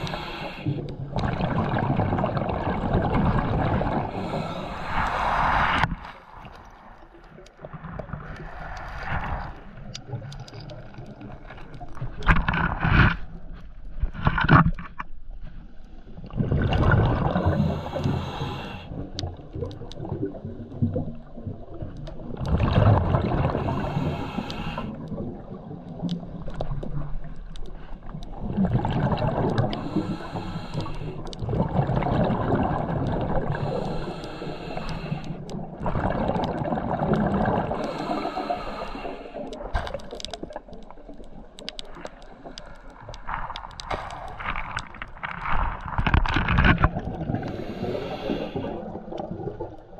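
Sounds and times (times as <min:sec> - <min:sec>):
regulator inhalations: 0:00.0 - 0:00.8, 0:17.5 - 0:18.9, 0:23.6 - 0:24.9, 0:29.8 - 0:31.2, 0:33.6 - 0:35.4, 0:37.8 - 0:39.5, 0:47.4 - 0:48.8
diver exhaling bubbles: 0:00.0 - 0:06.6, 0:16.4 - 0:18.5, 0:22.4 - 0:24.4, 0:28.4 - 0:30.7, 0:31.4 - 0:34.2, 0:35.8 - 0:38.9.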